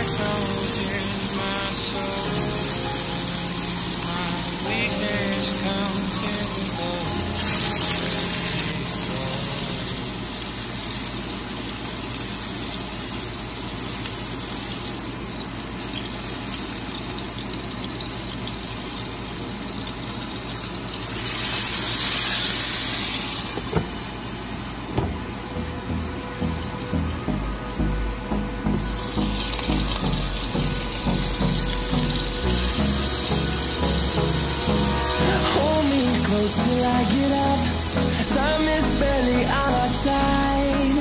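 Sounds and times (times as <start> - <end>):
background music: 0.0 - 10.4, 25.1 - 41.0
food sizzling in frying pan: 0.0 - 25.6, 28.7 - 41.0.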